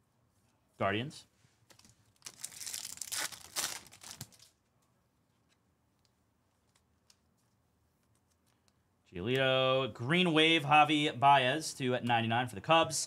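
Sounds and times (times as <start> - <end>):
foil wrapper tearing and crinkling: 2.2 - 4.5.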